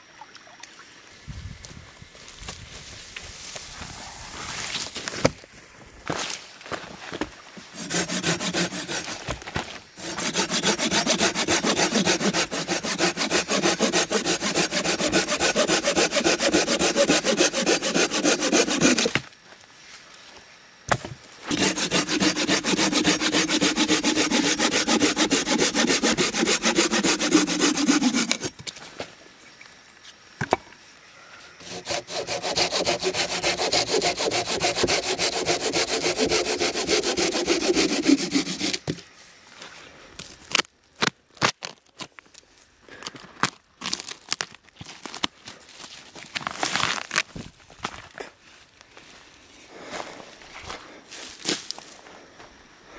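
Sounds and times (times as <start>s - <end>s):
hand saw cutting branch: 7.7s - 9.4s, 10.0s - 19.2s, 21.5s - 28.6s, 31.6s - 39.0s.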